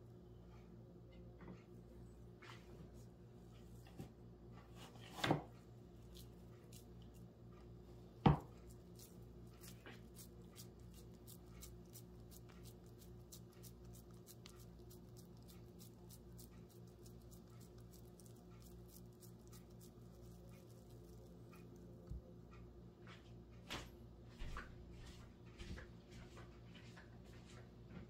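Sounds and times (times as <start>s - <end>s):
wet squishes of minced meat: 5.9s - 21.8s.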